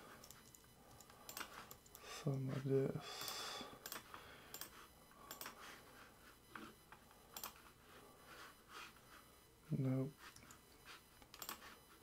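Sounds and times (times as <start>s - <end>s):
computer input clicks: 0.2s - 2.4s, 3.2s - 5.6s, 7.3s - 7.6s, 11.2s - 11.7s.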